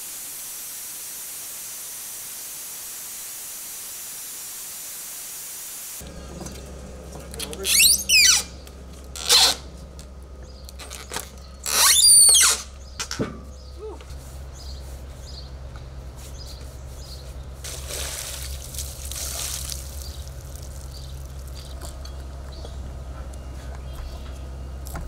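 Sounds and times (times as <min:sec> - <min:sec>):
low steady hum: 0:06.0 - 0:25.0.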